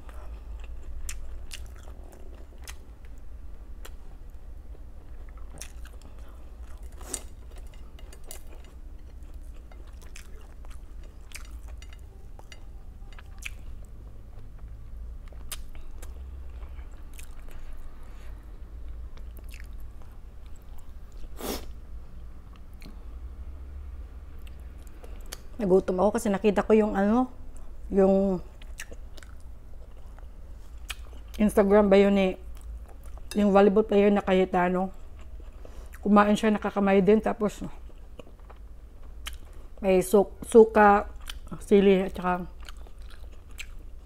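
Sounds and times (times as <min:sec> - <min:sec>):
chewing food: 0:00.0 - 0:21.3, 0:28.5 - 0:31.6, 0:32.4 - 0:33.5, 0:37.6 - 0:39.8, 0:41.1 - 0:44.0
low steady hum: 0:00.0 - 0:44.0.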